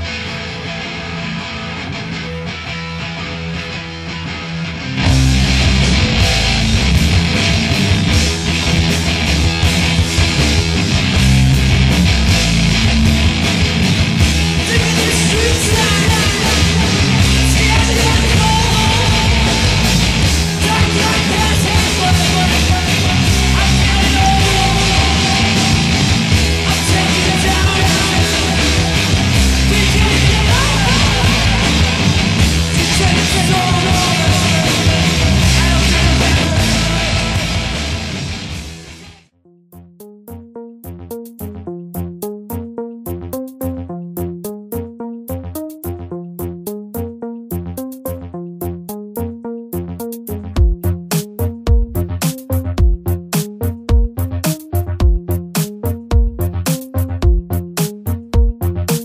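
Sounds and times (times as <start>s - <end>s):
loud rock music with vocals: 0.0s - 39.3s.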